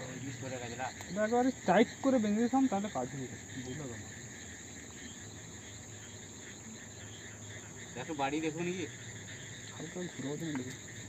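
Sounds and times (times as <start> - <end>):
crickets chirping: 0.0 - 11.0.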